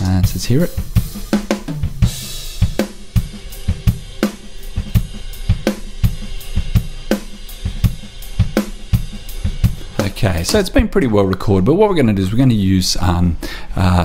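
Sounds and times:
cymbals: 0.0 - 10.6.

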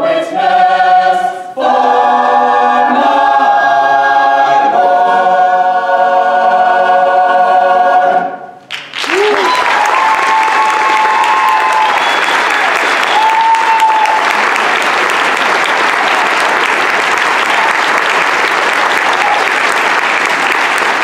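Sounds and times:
audience applauding: 8.7 - 21.0.

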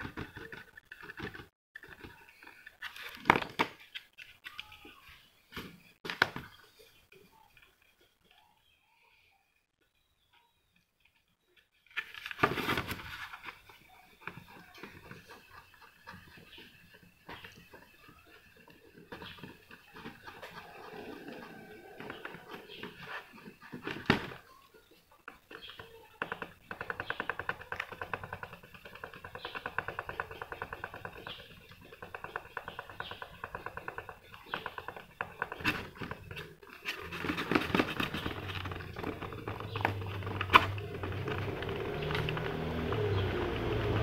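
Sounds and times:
squeaky fingertip rubbing plastic: 25.4 - 42.4.

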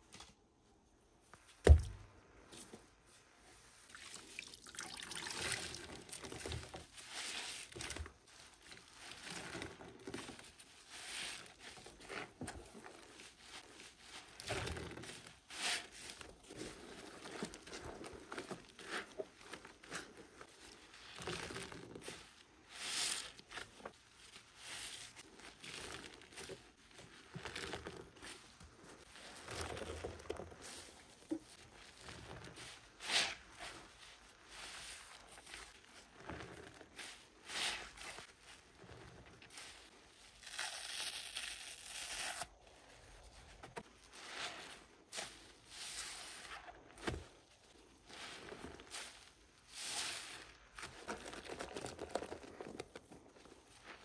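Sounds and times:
sponges squelching in soapy water: 1.7 - 54.0.

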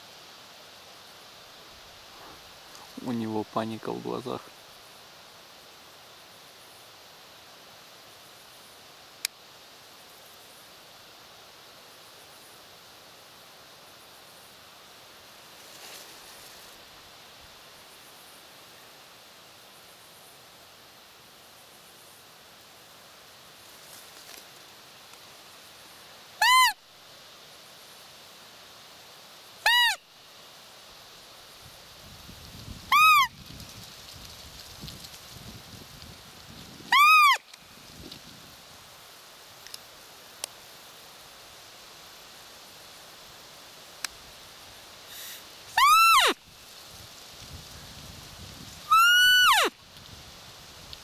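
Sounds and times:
soft rustle: 0.0 - 26.2, 30.2 - 45.8, 46.4 - 49.0, 49.7 - 51.0
faint open-air hiss: 0.0 - 51.0
person calling out: 48.9 - 49.7.

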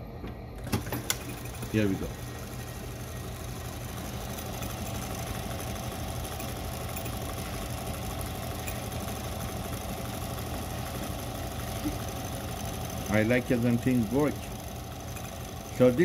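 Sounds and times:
sewing machine stitching: 0.6 - 16.0.

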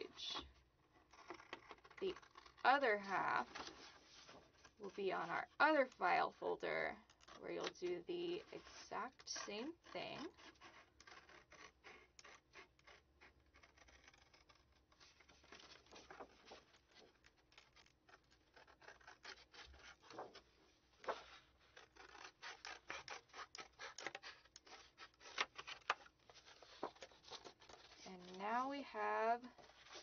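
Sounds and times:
scissors snipping folder: 21.1 - 28.2.

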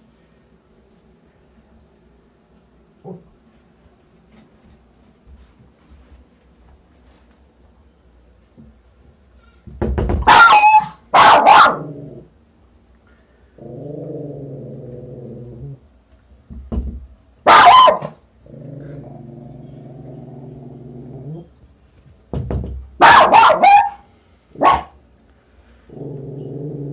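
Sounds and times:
steady low hum: 0.0 - 9.8, 11.0 - 17.5, 18.1 - 23.0, 24.0 - 26.9
small dog barking: 10.2 - 11.9, 17.4 - 18.2, 23.0 - 24.0, 24.6 - 25.0.

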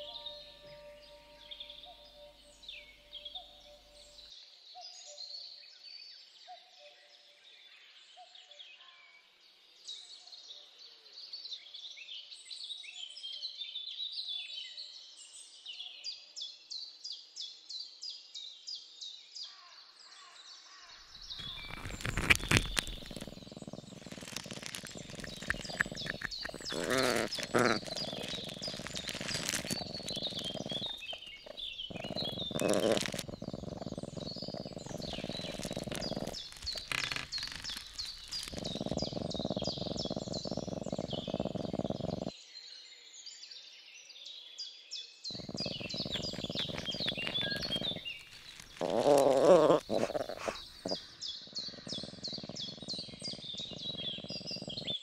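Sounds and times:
birds chirping and trilling: 0.0 - 4.2, 21.3 - 42.3, 45.4 - 55.0
wavering animal-like calls: 0.0 - 4.2, 21.4 - 42.3, 45.4 - 55.0.

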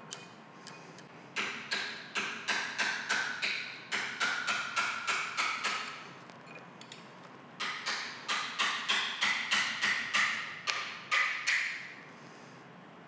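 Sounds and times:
hammer striking metal punch: 1.4 - 6.0, 7.6 - 11.8.

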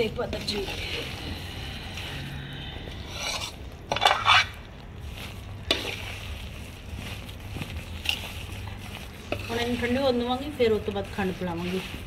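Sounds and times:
ladle scraping in a pan: 0.0 - 12.0.

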